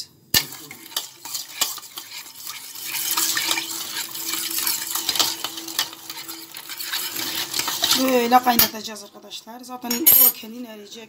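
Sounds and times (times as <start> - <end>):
sugar cubes clinking on steel: 0.4 - 8.8, 9.8 - 10.4
water sloshing in a pot: 0.4 - 9.2.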